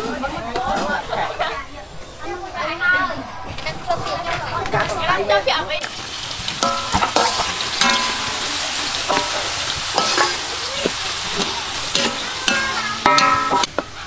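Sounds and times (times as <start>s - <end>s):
onions sizzling in oil: 5.8s - 14.0s
spatula scraping pan: 6.4s - 14.0s.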